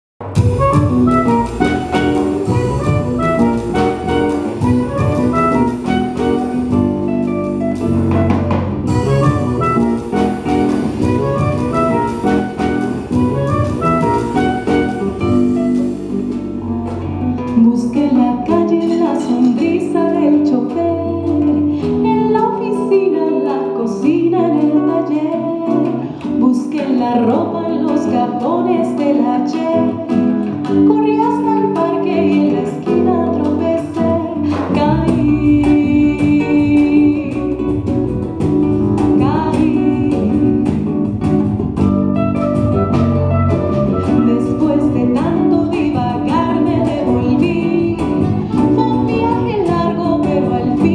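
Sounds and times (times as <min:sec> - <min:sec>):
drums: 0:00.2 - 0:19.7, 0:29.6 - 0:50.9
acoustic guitar: 0:00.2 - 0:50.9
woman singing: 0:17.2 - 0:41.4, 0:43.9 - 0:50.9.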